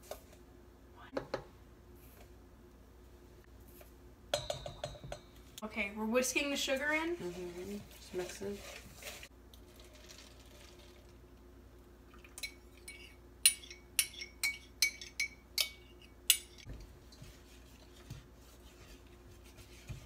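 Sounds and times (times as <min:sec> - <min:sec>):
faint steady hum: 0:00.0 - 0:20.0
metal utensil clinking on saucepan: 0:12.4 - 0:16.7.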